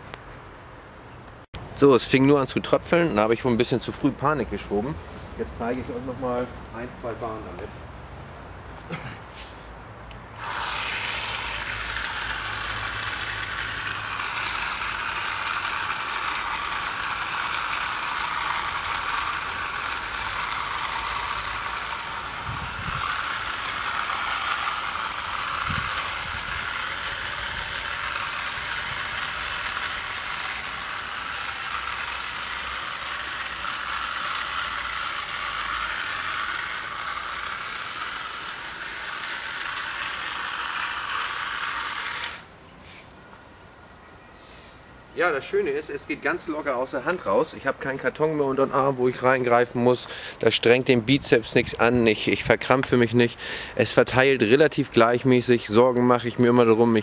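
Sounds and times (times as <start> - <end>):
battery spreader motor running: 10.3 - 42.5.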